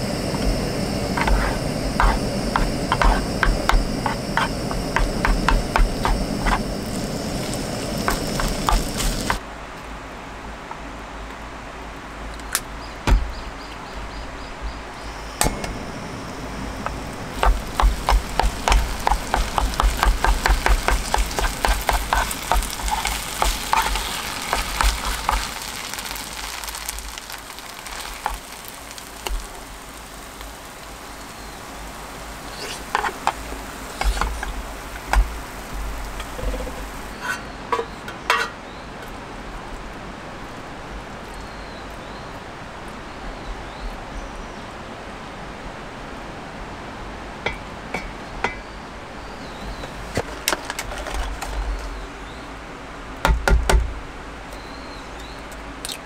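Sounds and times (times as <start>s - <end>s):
bright high hiss: 0.0s - 9.4s, 14.8s - 37.8s
steady hiss: 0.0s - 9.8s, 11.4s - 38.0s.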